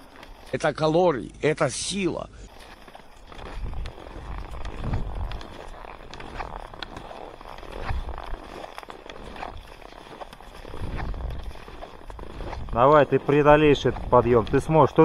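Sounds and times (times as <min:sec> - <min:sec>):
ski poles clicking: 0:00.0 - 0:00.7, 0:02.5 - 0:15.0
skis scraping over snow: 0:00.0 - 0:15.0
low rumble on microphone: 0:03.3 - 0:06.7.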